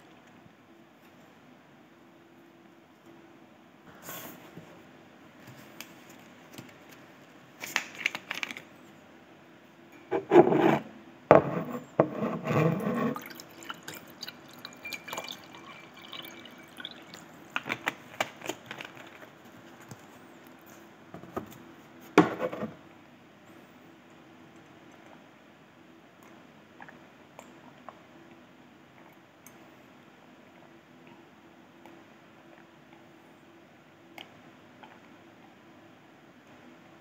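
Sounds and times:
water pouring into a cup: 0:12.9 - 0:17.6.

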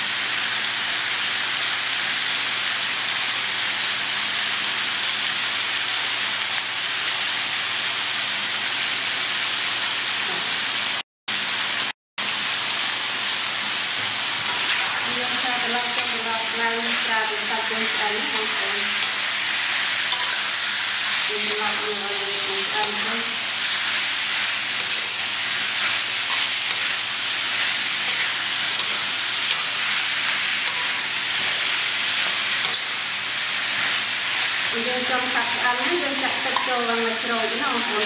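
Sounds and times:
meat sizzling in a wok: 0:00.0 - 0:38.0
metal spatula scraping wok: 0:15.7 - 0:22.0, 0:24.7 - 0:34.6.

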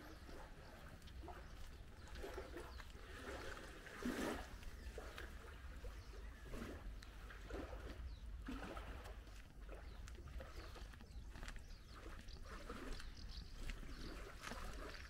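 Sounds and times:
footsteps on concrete: 0:09.1 - 0:15.0.

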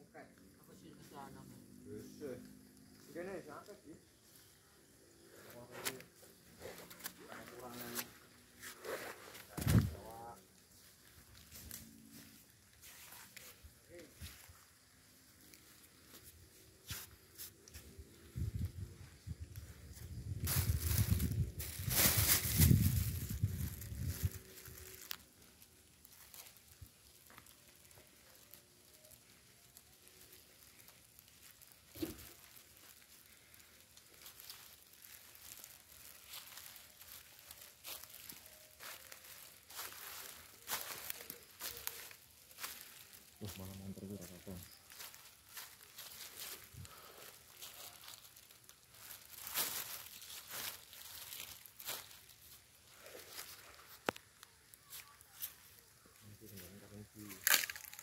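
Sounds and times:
dry leaves crackling underfoot: 0:00.4 - 0:58.0.

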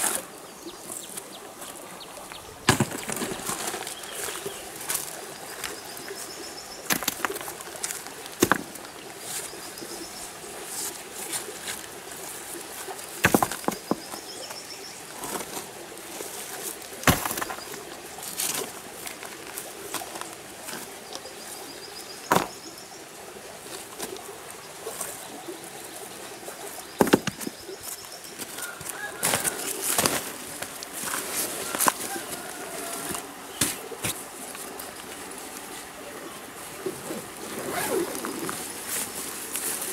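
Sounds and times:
steady outdoor hiss: 0:00.0 - 0:39.9
stones clacking and rustling: 0:02.2 - 0:21.3, 0:22.2 - 0:22.8, 0:26.7 - 0:35.1.

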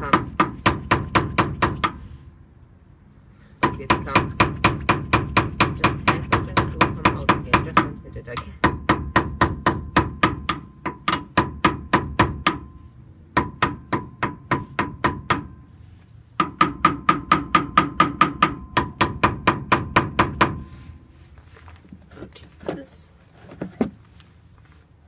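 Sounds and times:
hammer tapping on metal: 0:03.6 - 0:12.7, 0:13.4 - 0:15.6, 0:16.4 - 0:20.6.

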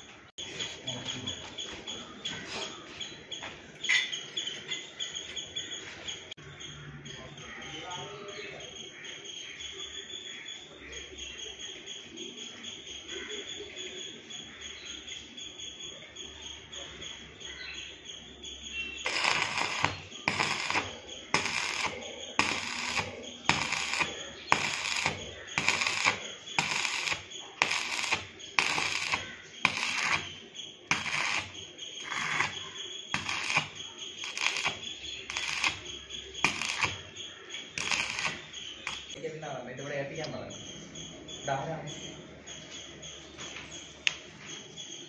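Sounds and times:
arc welding crackling: 0:19.0 - 0:39.2.

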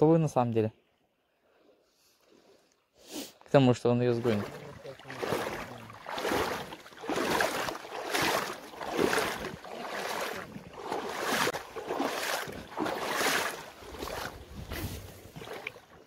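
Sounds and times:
river water sloshing: 0:04.0 - 0:16.0.

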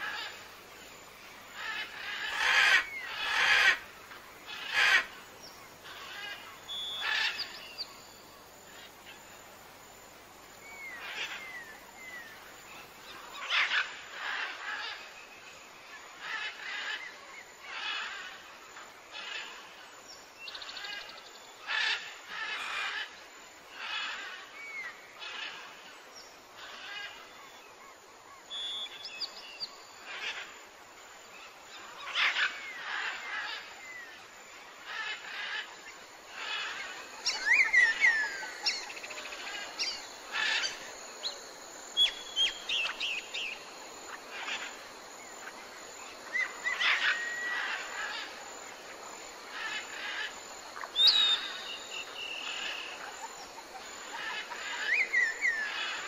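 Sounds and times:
birds chirping: 0:36.3 - 0:44.8, 0:46.3 - 0:48.4.

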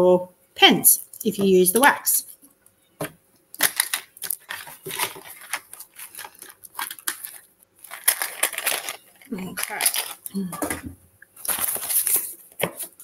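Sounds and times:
paper rustling: 0:03.6 - 0:10.3, 0:11.4 - 0:13.0.

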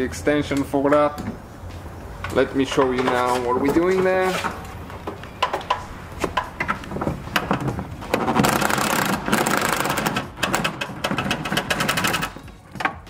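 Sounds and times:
impact wrench rattling: 0:02.7 - 0:13.0.

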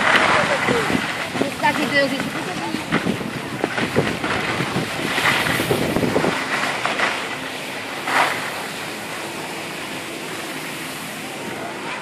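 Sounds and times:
wind on microphone: 0:00.0 - 0:06.8
skis scraping over snow: 0:00.0 - 0:11.2.

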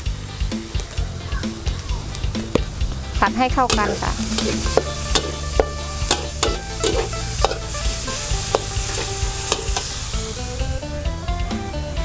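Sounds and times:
food sizzling in a pan: 0:00.0 - 0:10.9
spatula scraping a pan: 0:03.7 - 0:10.2.

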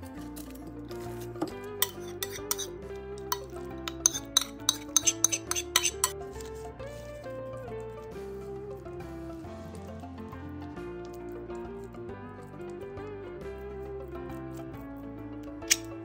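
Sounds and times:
background music: 0:00.0 - 0:16.0
metal spoon scraping ceramic plate: 0:01.4 - 0:06.5, 0:15.6 - 0:15.9.

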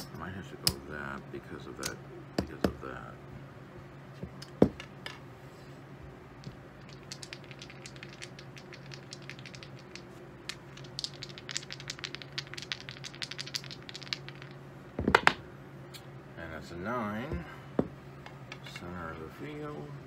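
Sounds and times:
dice shaken in hand: 0:06.4 - 0:14.6
poker chips clicking: 0:06.4 - 0:14.6.

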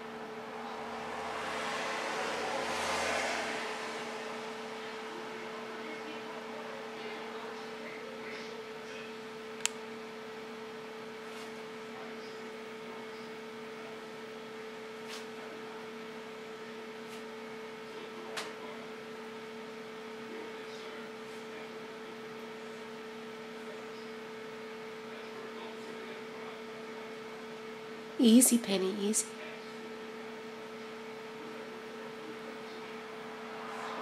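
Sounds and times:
steady two-pitch hum: 0:00.0 - 0:05.6.

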